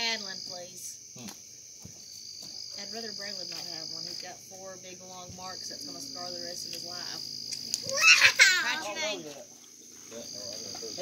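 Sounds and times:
crickets trilling: 0.0 - 11.0
quiet voices talking: 2.8 - 11.0.

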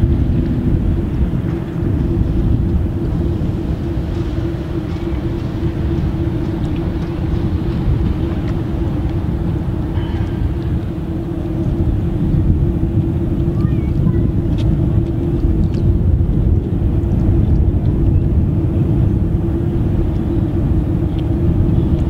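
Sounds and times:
ship engines droning: 0.0 - 22.0
wind rumble: 0.0 - 22.0.

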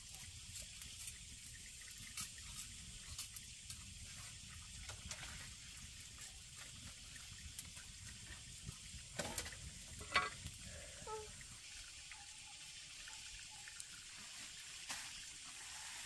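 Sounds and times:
running water: 0.0 - 16.0.

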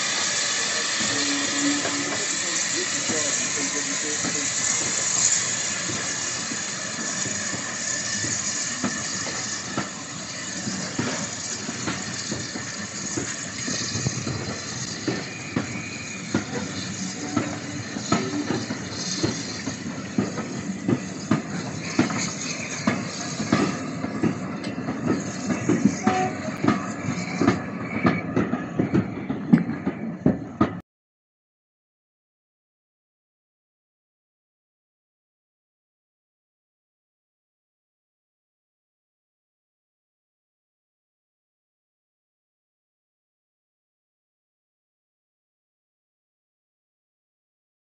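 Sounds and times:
steam hissing: 0.0 - 30.5
train wheels clicking over rail joints: 0.0 - 30.8.

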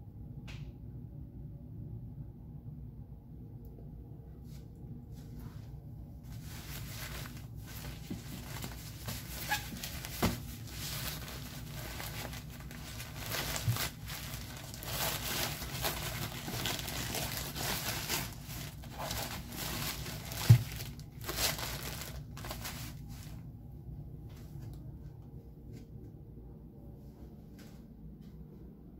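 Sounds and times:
plastic diaper crinkling: 6.3 - 23.4.

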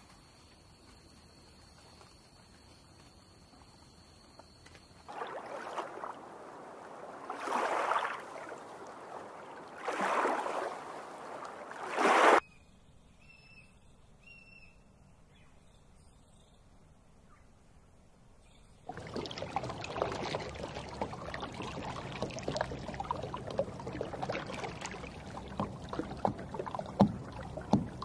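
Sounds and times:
water sloshing and washing: 5.0 - 12.4, 18.9 - 28.0
faint bird chirps: 12.4 - 17.6.

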